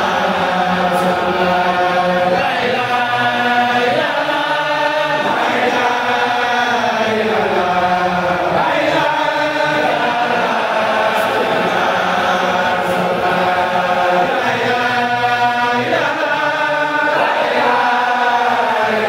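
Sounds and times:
men and boys chanting in unison: 0:00.0 - 0:19.0.

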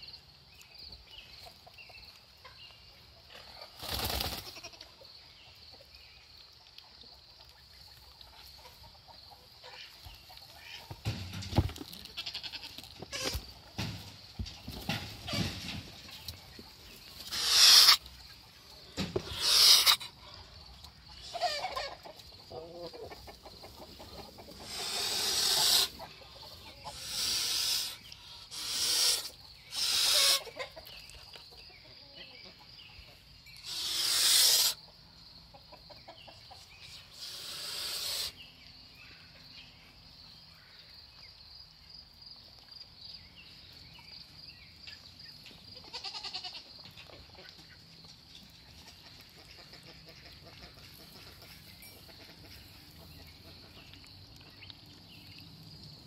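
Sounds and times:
goose hissing: 0:17.3 - 0:18.0, 0:19.2 - 0:20.2, 0:24.6 - 0:26.0, 0:26.9 - 0:30.5, 0:33.6 - 0:34.8, 0:37.1 - 0:38.4.

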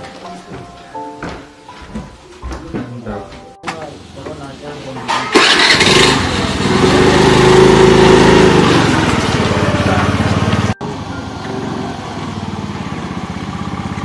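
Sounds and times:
motor scooter engine running: 0:05.2 - 0:14.0.

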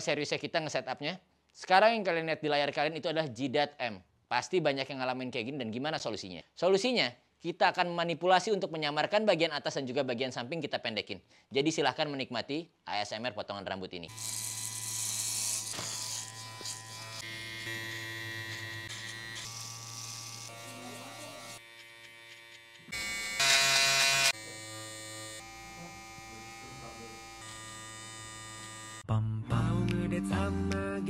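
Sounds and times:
hair clippers buzzing: 0:14.1 - 0:29.0.

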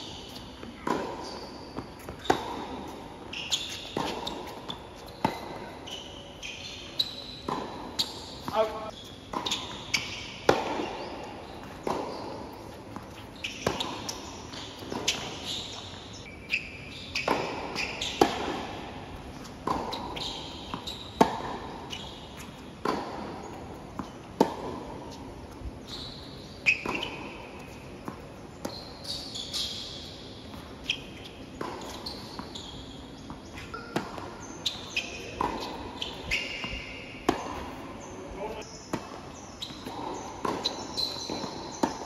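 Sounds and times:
shoes squeaking on court: 0:00.0 - 0:42.0
ball bouncing on hard court: 0:00.3 - 0:16.2, 0:17.1 - 0:29.8, 0:30.5 - 0:42.0
tennis ball struck by racket: 0:00.8 - 0:05.7, 0:07.5 - 0:11.0, 0:11.6 - 0:15.4, 0:17.2 - 0:25.2, 0:31.6 - 0:32.5, 0:33.2 - 0:37.8, 0:38.9 - 0:42.0.

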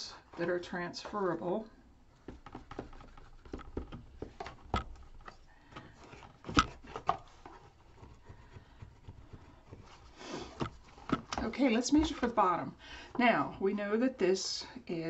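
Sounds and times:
hands tapping on a box: 0:02.2 - 0:11.4.

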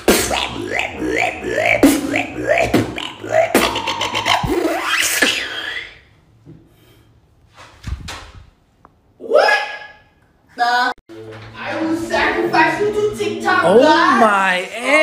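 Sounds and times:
human beatboxing: 0:00.0 - 0:06.0.

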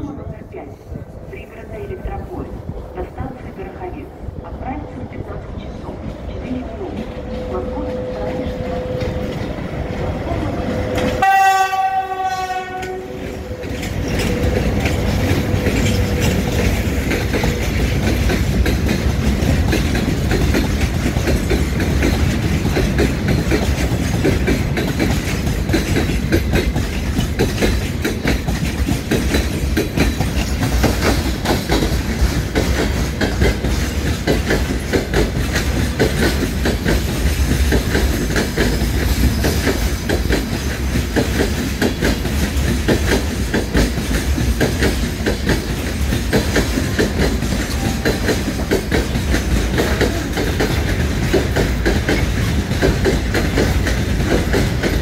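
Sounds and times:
train wheels clattering: 0:06.0 - 0:55.0
train horn: 0:11.0 - 0:14.8.

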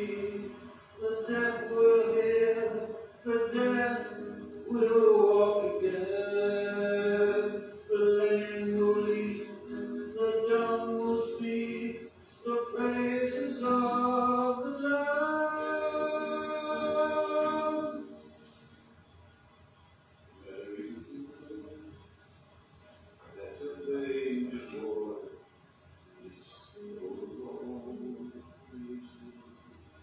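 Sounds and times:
man singing slow song: 0:00.0 - 0:18.2.

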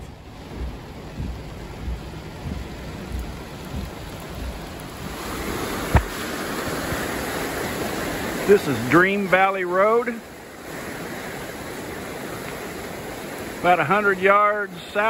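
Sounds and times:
rain heard from inside car: 0:00.0 - 0:15.0
rushing floodwater: 0:00.0 - 0:15.0
sharp knock: 0:05.9 - 0:06.2.

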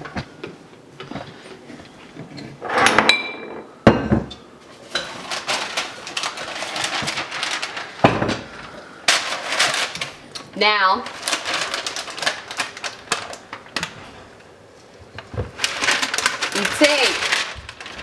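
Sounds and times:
parchment paper crinkling: 0:05.1 - 0:10.3, 0:11.0 - 0:14.2, 0:15.1 - 0:18.0.

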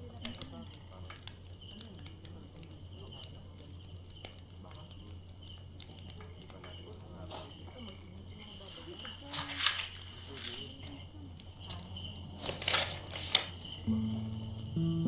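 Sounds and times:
crickets chirping: 0:00.0 - 0:15.0
low steady hum: 0:13.9 - 0:15.0.

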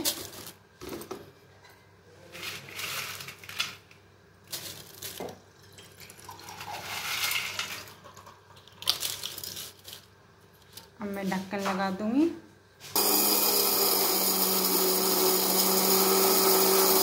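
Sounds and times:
dry chillies rustling in steel jar: 0:02.3 - 0:03.8, 0:04.5 - 0:05.2, 0:08.8 - 0:10.1.

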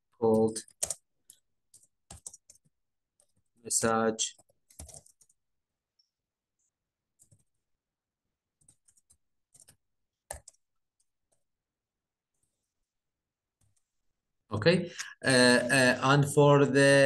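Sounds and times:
computer keyboard keystrokes: 0:00.6 - 0:03.4, 0:04.3 - 0:05.4, 0:08.6 - 0:10.6.

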